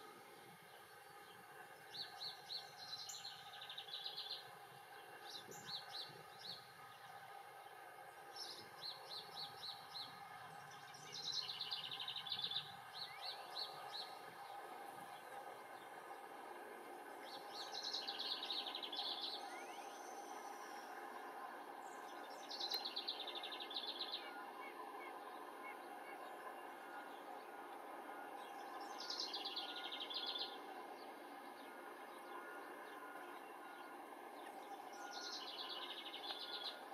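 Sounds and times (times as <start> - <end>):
faint background hum: 0.0 - 36.9
wren singing: 1.8 - 4.5, 8.4 - 14.6, 17.1 - 21.2, 21.8 - 27.4, 28.4 - 36.9.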